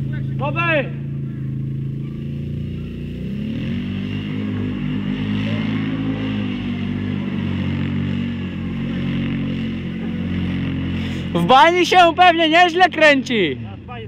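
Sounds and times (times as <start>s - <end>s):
atv engine revving: 0.0s - 14.0s.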